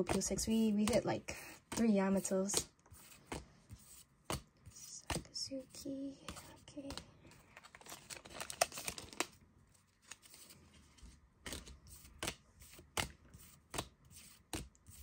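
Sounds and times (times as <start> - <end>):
foil wrapper crinkling: 7.6 - 9.4.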